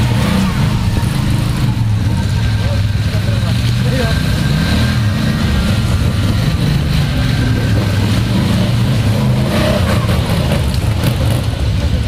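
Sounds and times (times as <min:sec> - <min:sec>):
quad bike engines revving: 0:00.0 - 0:12.0.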